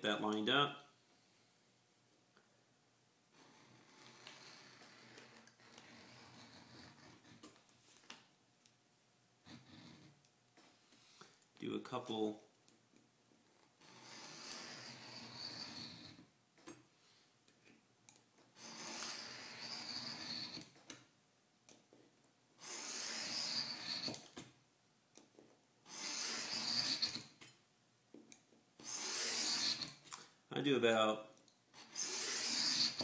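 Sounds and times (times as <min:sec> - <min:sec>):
knife scraping along metal sheet: 0:03.3 - 0:07.6, 0:13.8 - 0:16.3, 0:18.6 - 0:20.8, 0:22.6 - 0:24.4, 0:25.9 - 0:27.5, 0:28.8 - 0:30.1, 0:31.8 - 0:33.0.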